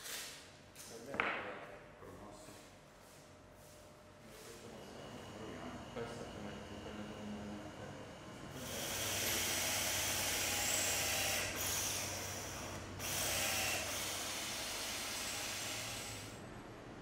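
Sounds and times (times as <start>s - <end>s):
drill whirring into wall: 8.5s - 16.4s.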